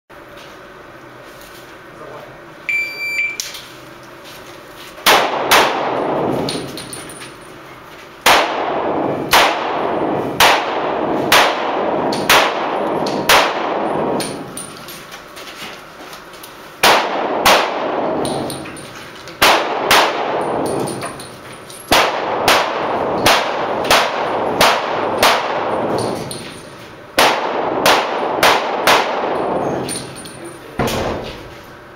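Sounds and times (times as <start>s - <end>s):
shot timer beep: 2.7s - 3.4s
pistol shots echoing: 5.1s - 6.9s, 8.2s - 14.6s, 16.8s - 18.8s, 19.4s - 21.2s, 21.9s - 26.6s, 27.2s - 30.1s.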